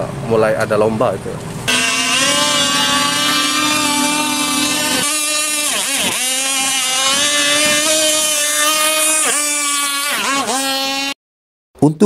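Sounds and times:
model speedboat engine whine: 1.6 - 11.2.

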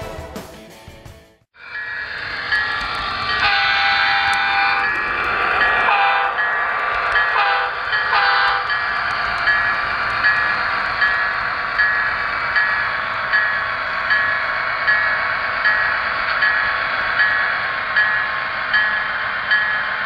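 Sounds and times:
train running noise: 1.6 - 20.0
train horn blasts: 3.4 - 4.8, 5.9 - 6.4, 7.3 - 8.7.

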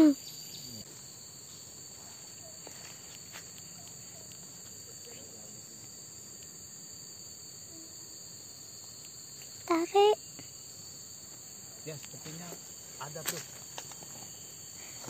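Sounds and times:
insects chorus: 0.0 - 15.0
faint ticks: 8.8 - 9.7.

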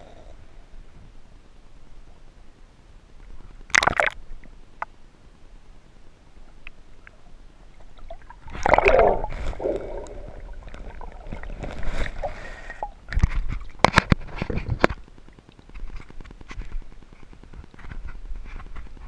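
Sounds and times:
water sloshing and splashing: 3.6 - 4.2, 7.7 - 16.9.

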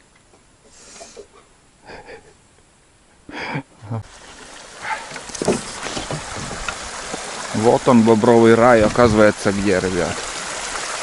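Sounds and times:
stream flowing: 4.0 - 11.0.

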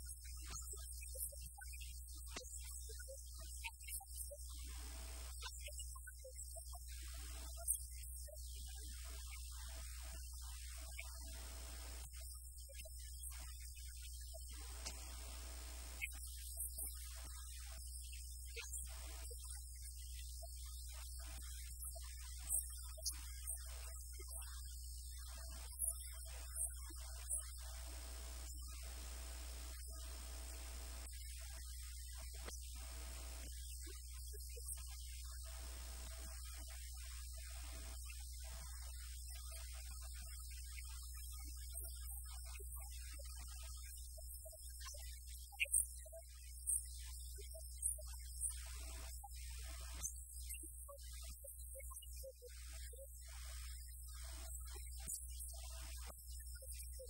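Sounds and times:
faint ticks: 14.5 - 17.0
low electrical hum: 14.6 - 16.0, 27.6 - 31.0, 32.8 - 33.4
low electrical mains hum: 14.6 - 16.0.

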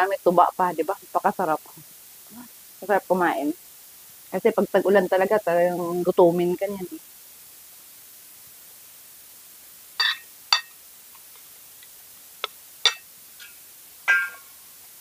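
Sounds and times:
cutlery clinking on dishes: 10.0 - 10.7, 12.8 - 14.5.

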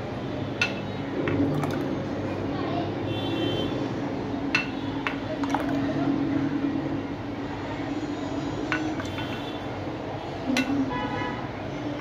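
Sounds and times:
thick drink pouring: 1.3 - 2.1, 5.3 - 6.0.

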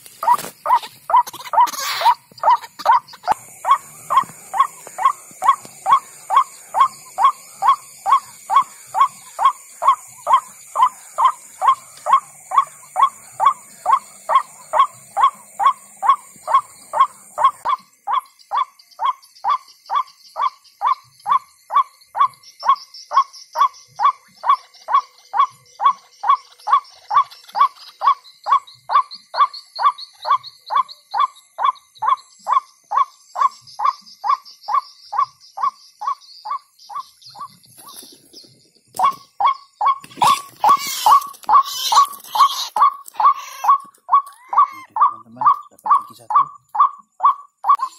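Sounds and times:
high steady hiss: 0.0 - 47.9
faint high chirps: 0.2 - 47.9
electronic bird call from loudspeaker: 39.0 - 47.9.

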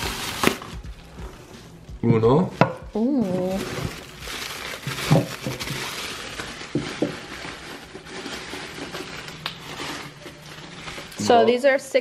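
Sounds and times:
rustling: 3.2 - 11.4.

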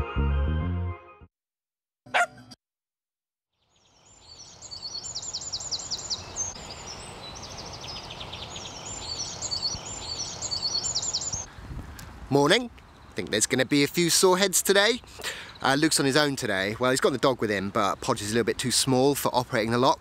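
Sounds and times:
birds singing with fast trills: 3.6 - 11.5, 14.8 - 18.4.

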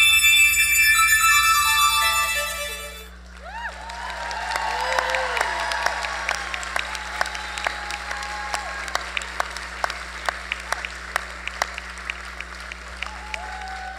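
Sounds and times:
whoop: 3.4 - 9.0, 13.0 - 13.9
audience applauding: 3.4 - 13.9.

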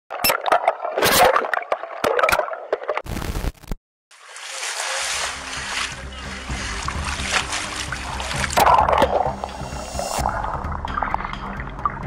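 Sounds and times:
water splashing from wading: 4.1 - 12.0.

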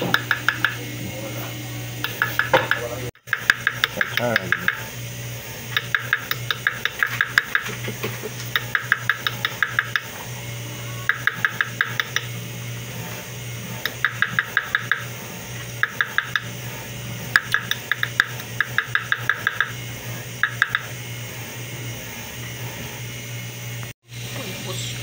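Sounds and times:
metal tapping on setting punch: 2.0 - 4.8.

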